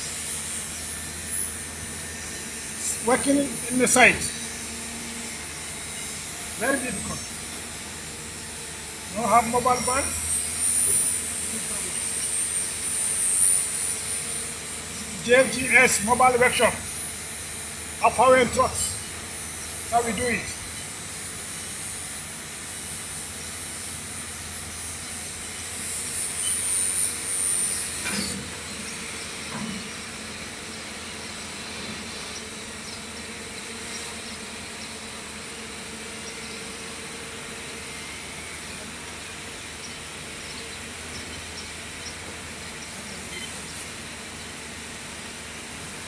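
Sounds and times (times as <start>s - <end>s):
steady background hiss: 0.6s - 27.9s.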